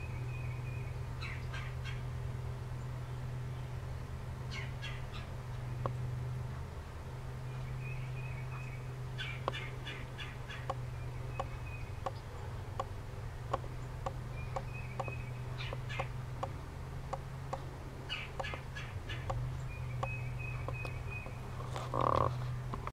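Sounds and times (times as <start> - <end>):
birds chipping: 0.0 - 22.5
steady low hum: 0.0 - 22.9
woodpecker tapping on wood: 9.4 - 9.7, 10.5 - 10.8, 11.4 - 12.2, 13.5 - 17.7, 18.3 - 19.4, 20.0 - 22.3
whistled bird notes: 18.1 - 21.4.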